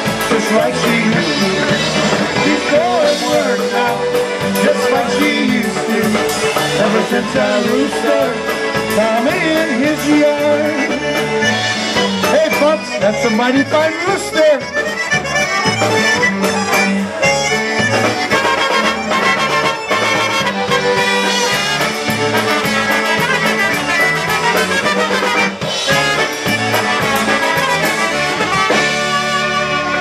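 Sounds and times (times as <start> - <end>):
piano accordion: 0.0 - 30.0
polka band playing: 0.0 - 30.0
trumpets: 11.3 - 30.0.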